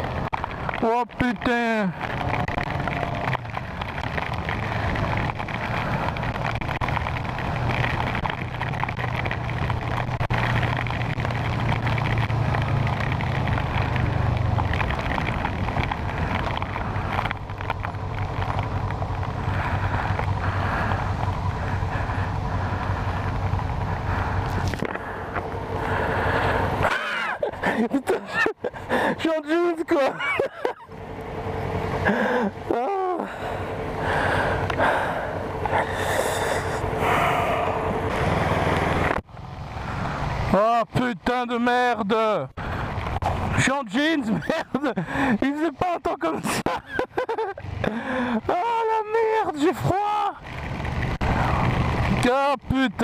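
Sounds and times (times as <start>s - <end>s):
motorcycle engine running: 0.0s - 26.9s, 30.8s - 40.8s
wind and wet road hiss: 0.0s - 53.0s.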